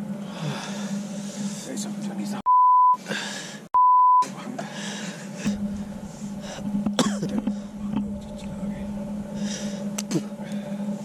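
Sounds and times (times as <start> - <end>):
censor bleep: 2.5 - 3.0, 3.8 - 4.3.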